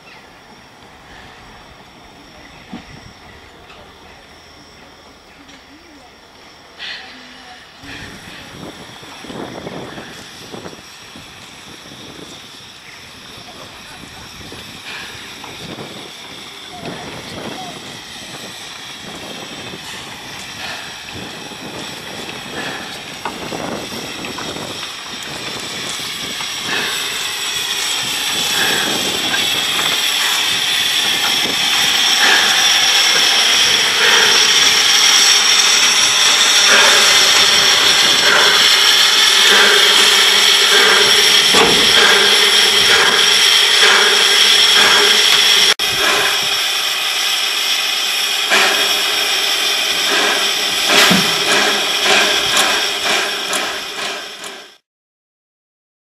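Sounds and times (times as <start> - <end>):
steam locomotive hissing steam: 0.0 - 54.8.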